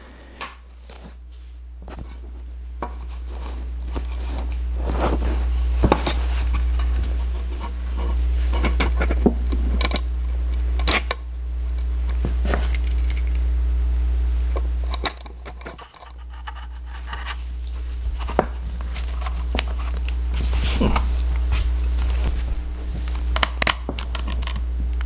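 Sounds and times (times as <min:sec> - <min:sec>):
steady low hum: 0:00.0 - 0:25.0
metallic clicks and rattles: 0:12.7 - 0:13.5.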